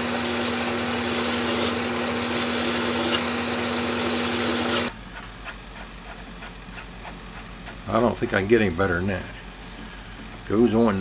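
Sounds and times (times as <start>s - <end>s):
lathe running hum: 0.0s - 10.9s
file rasping on metal: 0.1s - 8.0s.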